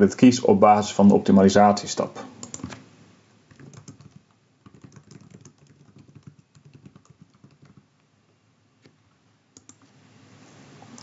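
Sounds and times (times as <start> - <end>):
faint keyboard typing: 2.4 - 2.8, 3.5 - 8.1, 8.8 - 9.9.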